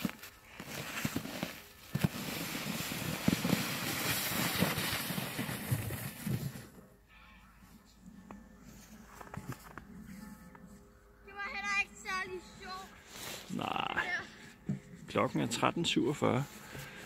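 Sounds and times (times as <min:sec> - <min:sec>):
plastic sled scraping on snow: 0:00.0 - 0:06.9.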